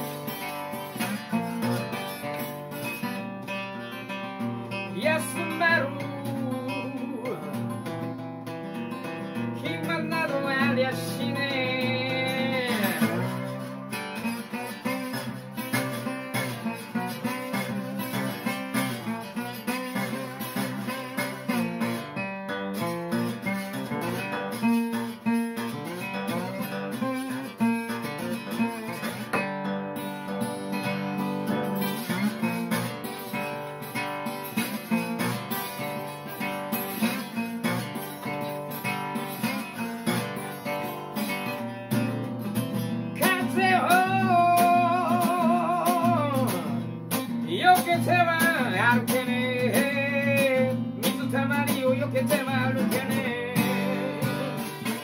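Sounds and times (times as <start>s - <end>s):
slide guitar playing: 0.0s - 55.0s
man singing: 4.4s - 8.2s, 9.0s - 21.8s, 43.2s - 55.0s.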